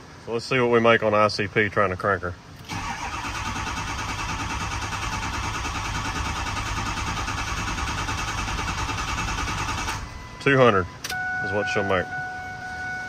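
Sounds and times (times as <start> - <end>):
diesel engine cranking: 2.6 - 13.0.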